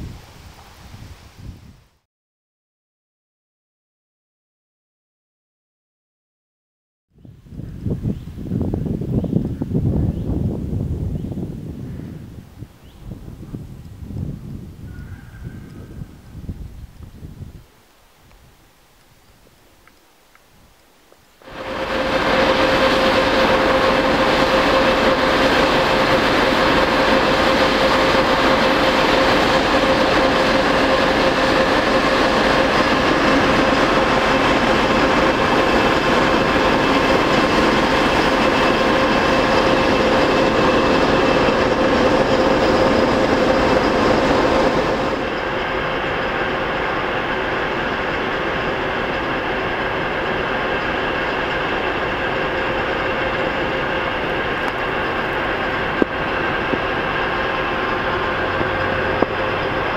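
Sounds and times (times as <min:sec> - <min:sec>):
diesel locomotive passing: 0:21.2 - 0:59.9.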